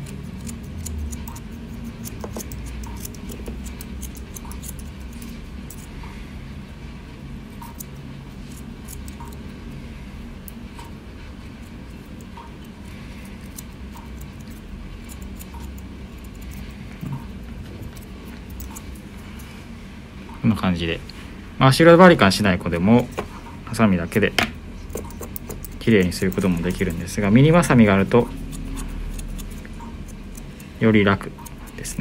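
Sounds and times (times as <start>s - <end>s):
scissors snipping fur: 0.0s - 5.9s, 7.6s - 9.8s, 11.6s - 19.5s, 24.9s - 32.0s.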